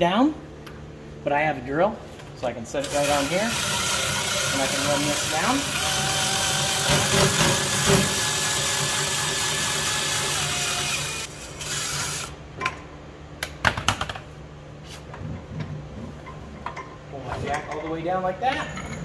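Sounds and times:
cordless drill running: 2.8s - 12.4s.

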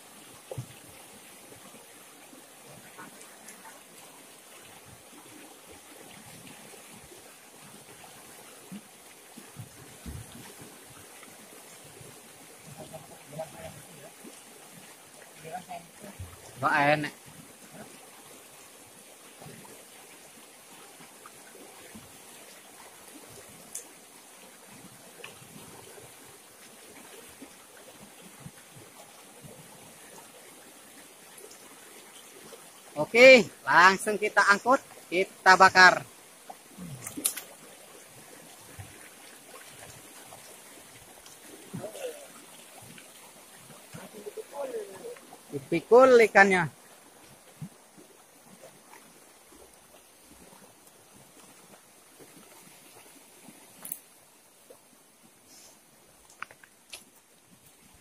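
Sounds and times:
river running over stones: 0.0s - 58.0s
water splashes and drips: 0.0s - 58.0s
faint splashes and knocks: 0.4s - 1.0s, 7.8s - 16.6s, 36.4s - 45.5s.

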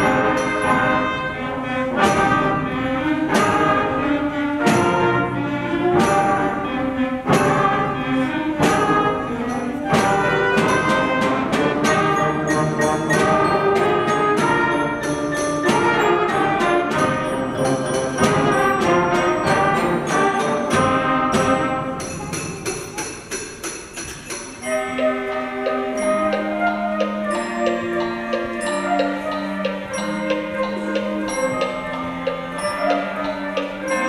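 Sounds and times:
concert band playing: 0.0s - 34.0s
jingling sleigh bells: 17.0s - 20.8s.

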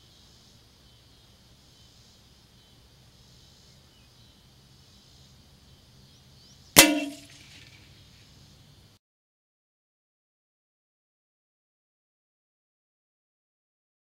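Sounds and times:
faint insect buzz: 0.0s - 9.0s
rifle shot crack: 6.8s - 7.8s.

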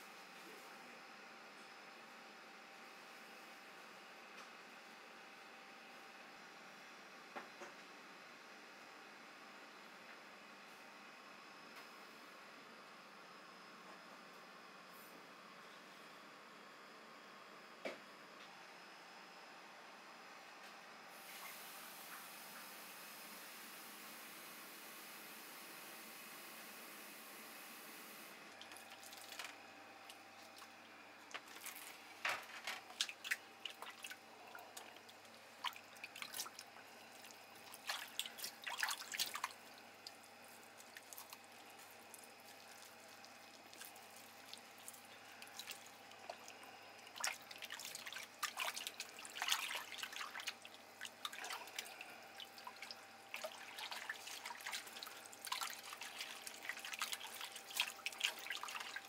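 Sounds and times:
water splashing and dripping: 32.9s - 34.2s, 34.8s - 40.2s, 47.1s - 59.0s.

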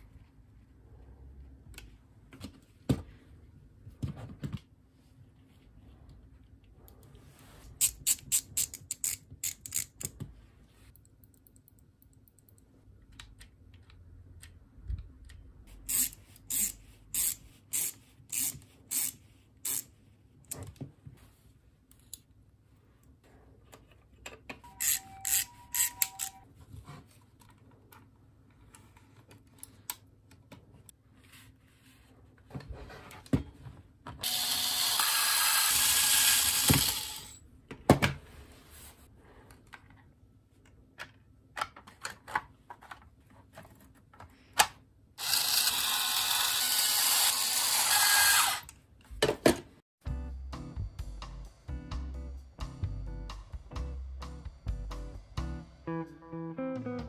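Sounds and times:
cordless screwdriver running: 34.2s - 37.4s, 45.2s - 48.7s.

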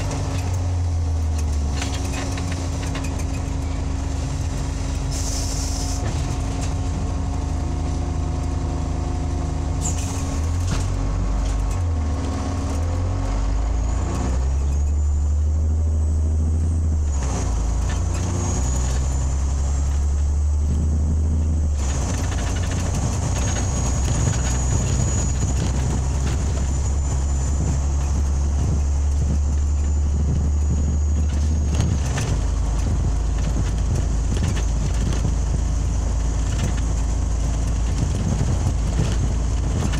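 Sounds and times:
bus engine drone: 0.0s - 39.9s
air hiss: 5.1s - 6.0s.

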